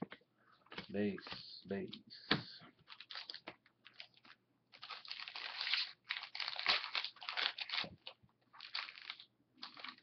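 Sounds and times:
foil wrapper crinkling: 2.9 - 10.0.

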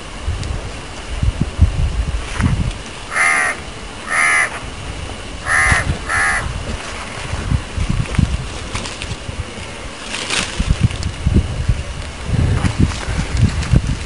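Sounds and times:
crow cawing: 3.1 - 4.6, 5.4 - 6.5.

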